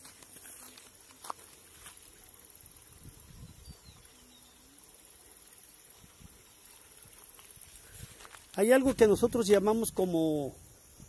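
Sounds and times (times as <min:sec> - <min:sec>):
faint high chirp: 0:02.2 - 0:05.9.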